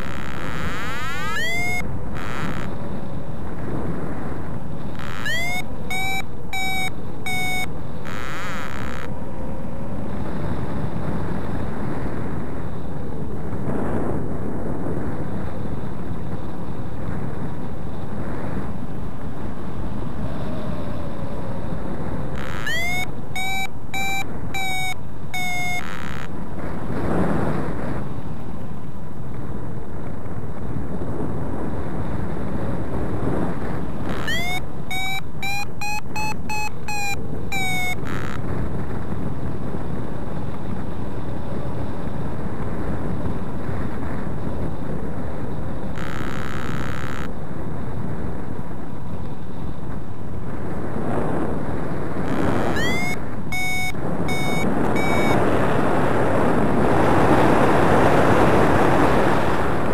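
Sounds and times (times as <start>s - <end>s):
variometer beeping: 0.0s - 2.7s, 4.9s - 9.1s, 22.3s - 26.4s, 34.0s - 38.5s, 45.9s - 47.4s, 52.6s - 55.5s
wind rushing over microphone: 0.0s - 59.9s.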